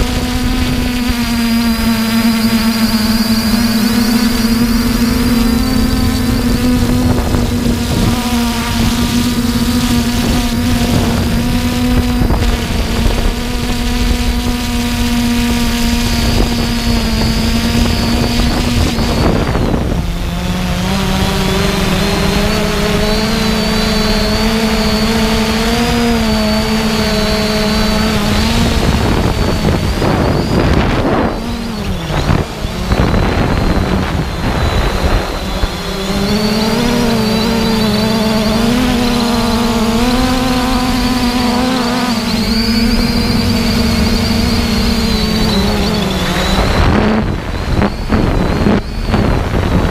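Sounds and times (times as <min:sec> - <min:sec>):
drone propellers humming: 0:00.0 - 0:49.9
wind rumble on microphone: 0:00.0 - 0:49.9.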